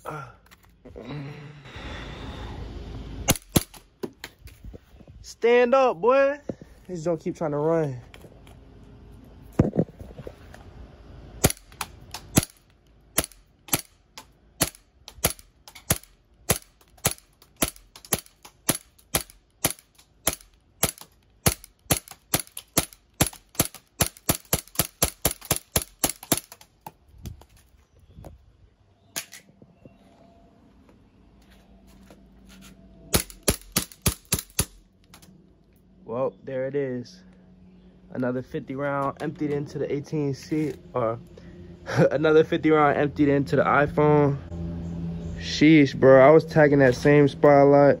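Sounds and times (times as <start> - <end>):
bb pistol shots: 3.3 - 3.9, 11.4 - 14.0, 14.6 - 26.6, 33.1 - 34.8.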